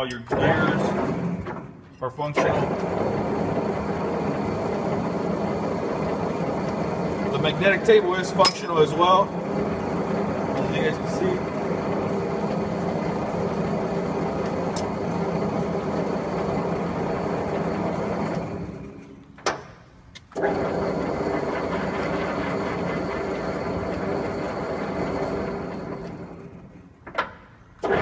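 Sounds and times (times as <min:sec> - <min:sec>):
grinder machine hum: 0:02.4 - 0:19.3, 0:20.4 - 0:26.9.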